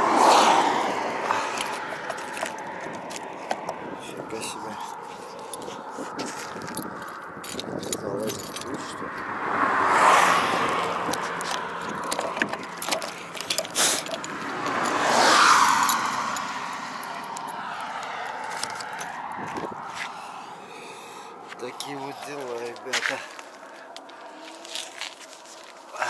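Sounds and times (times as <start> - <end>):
road vehicles passing by: 0.0 - 26.0
close clicks and rustles: 10.6 - 14.9.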